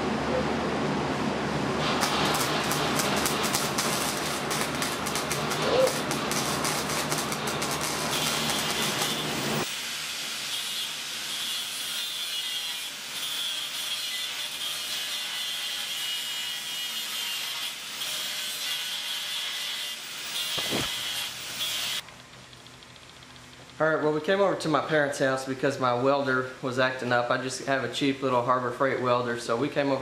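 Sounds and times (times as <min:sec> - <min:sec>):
welding arc crackling: 0:01.8 - 0:15.4, 0:16.7 - 0:23.8.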